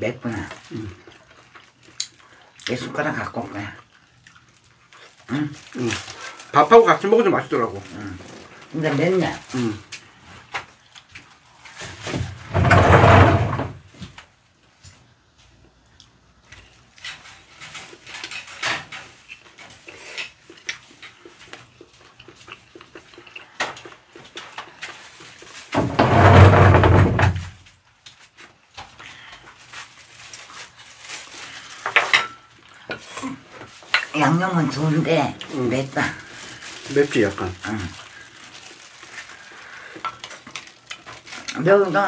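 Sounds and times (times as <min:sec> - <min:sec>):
chewing and mouth sounds: 0:00.5 - 0:02.8, 0:03.8 - 0:05.8, 0:19.1 - 0:25.7.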